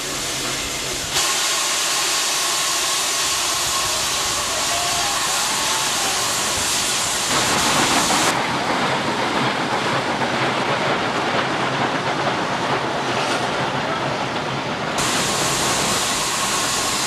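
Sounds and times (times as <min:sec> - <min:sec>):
steam locomotive exhaust hiss: 0:00.0 - 0:08.4, 0:15.0 - 0:17.0.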